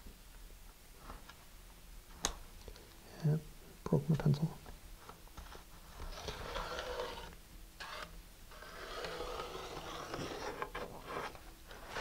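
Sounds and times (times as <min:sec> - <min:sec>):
pencil scraping on tube: 0:06.0 - 0:12.0.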